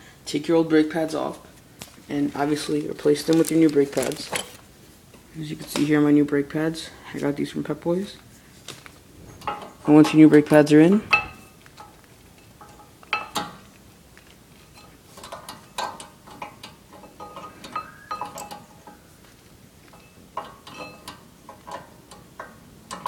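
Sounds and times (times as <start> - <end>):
metallic clinks of tools: 17.0 - 19.0.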